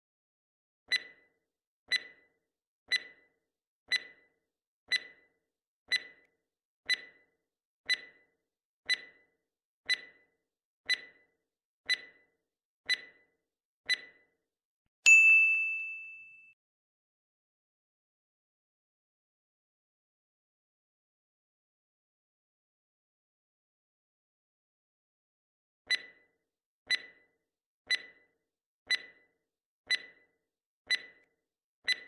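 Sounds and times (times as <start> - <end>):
countdown timer ticks: 0.9 - 6.3, 6.9 - 14.3, 25.9 - 32.0
ringing ding: 15.1 - 16.6.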